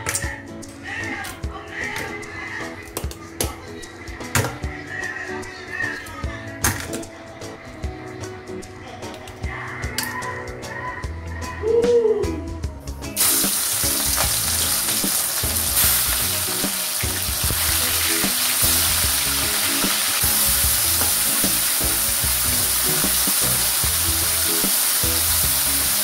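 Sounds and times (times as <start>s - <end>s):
background music: 0.0s - 26.0s
food sizzling in hot oil: 13.2s - 26.0s.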